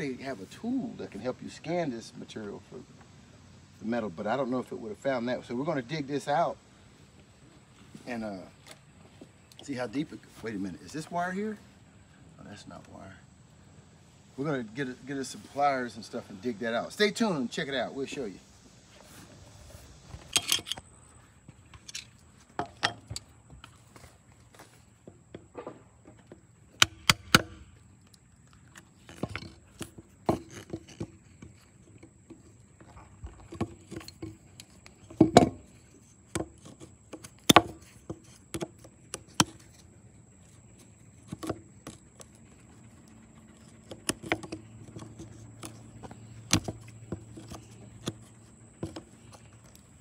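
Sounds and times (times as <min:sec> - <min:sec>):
pliers clicking and scraping metal: 0:20.3 - 0:20.8.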